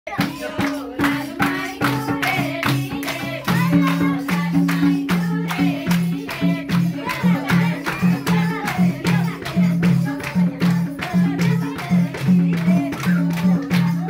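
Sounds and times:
steady drum beat: 0.1 - 14.0.

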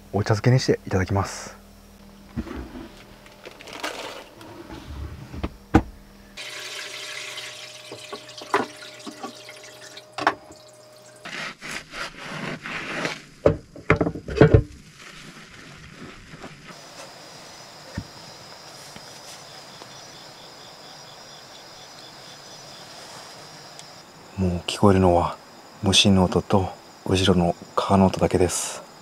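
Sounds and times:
tap water running: 6.4 - 11.3
sponge scrubbing wood: 11.0 - 13.2
plastic bag rustling: 14.8 - 17.0.

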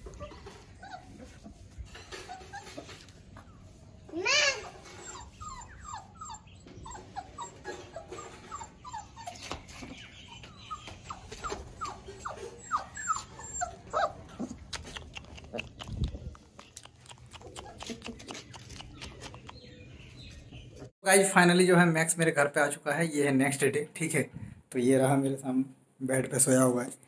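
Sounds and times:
puppy whimpering: 0.0 - 1.5, 2.1 - 3.0, 4.5 - 9.6, 10.2 - 15.9, 16.7 - 19.8.

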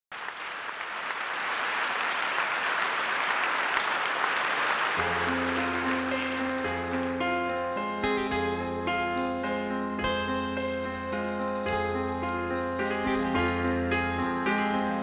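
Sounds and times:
audience applauding: 0.1 - 7.5.

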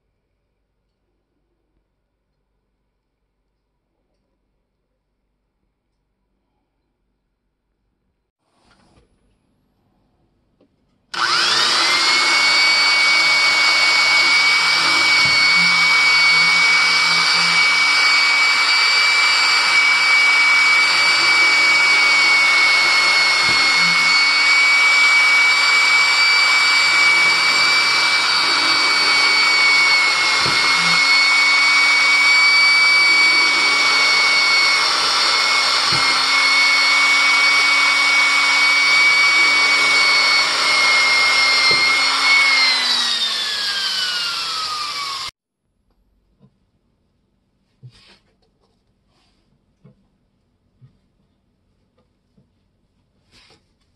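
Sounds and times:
rotary tool grinding metal: 11.2 - 45.3.

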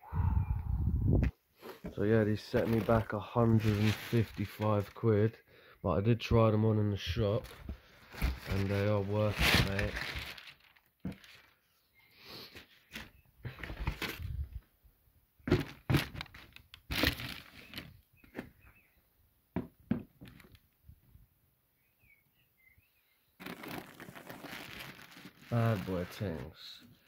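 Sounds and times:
rustling: 1.6 - 5.0, 7.4 - 11.8, 15.5 - 18.5, 23.4 - 26.7.

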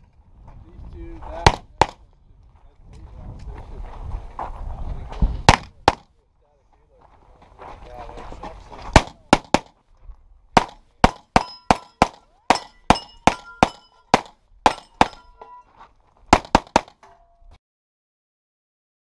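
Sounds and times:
pistol shots: 5.4 - 6.1, 8.9 - 9.7, 10.6 - 15.3, 16.4 - 17.0
steel targets ringing: 11.1 - 15.7.

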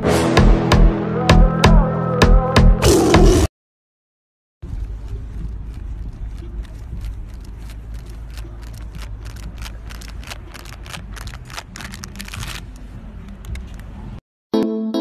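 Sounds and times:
clicks and rustles: 4.7 - 14.1.

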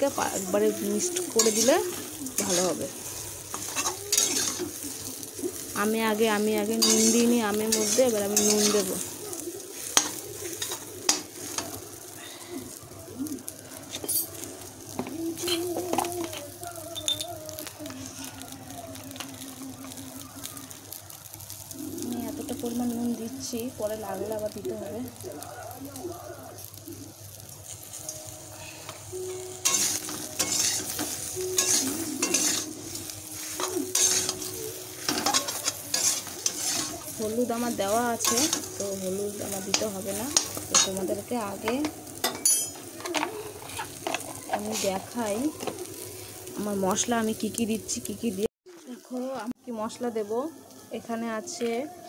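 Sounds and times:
food sizzling in oil: 0.0 - 52.0
metal spatula scraping pan: 0.3 - 4.8, 6.8 - 9.1, 29.6 - 38.8.

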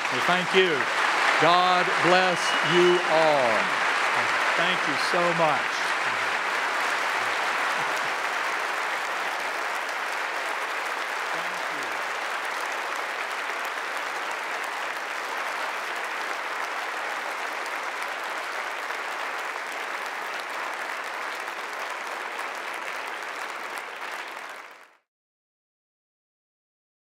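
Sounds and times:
large audience applauding: 0.0 - 25.1.

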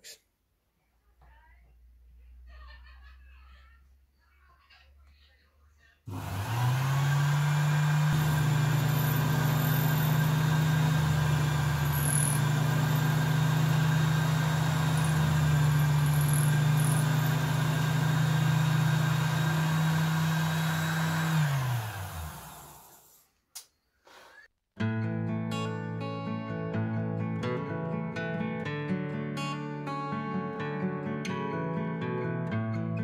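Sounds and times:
lathe motor humming: 6.1 - 23.0.

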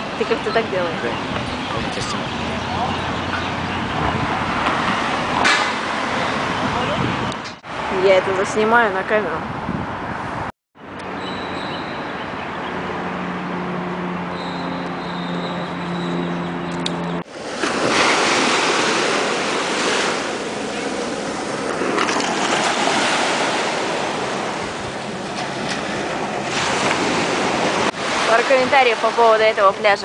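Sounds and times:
wind on microphone: 0.0 - 10.5
street traffic hum: 0.0 - 30.0
engine drone: 10.8 - 30.0
waves breaking on sandy beach: 17.2 - 30.0.

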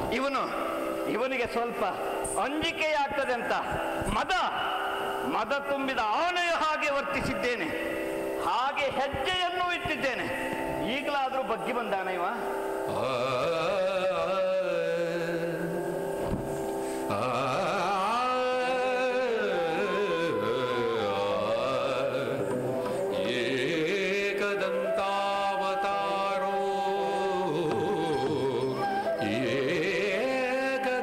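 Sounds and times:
classical melody with sliding pitches: 19.4 - 31.0.

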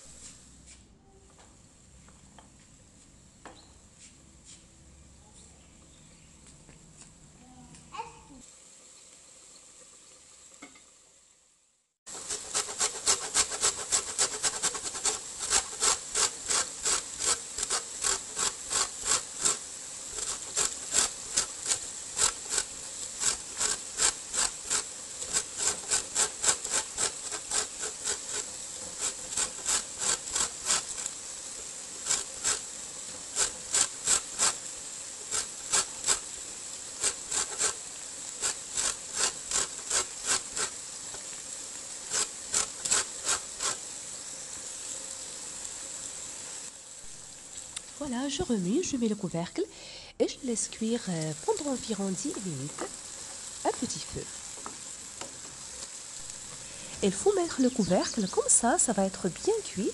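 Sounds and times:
lemon rasping on metal grater: 12.1 - 31.2, 32.0 - 34.7, 35.3 - 36.4, 37.0 - 40.8, 42.0 - 43.8.

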